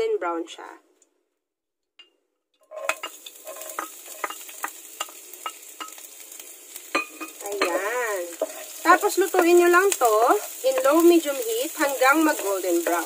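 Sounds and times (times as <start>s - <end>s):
wooden spoon clicking and scraping: 2.6s - 6.0s
garlic sizzling in hot fat: 2.6s - 13.0s.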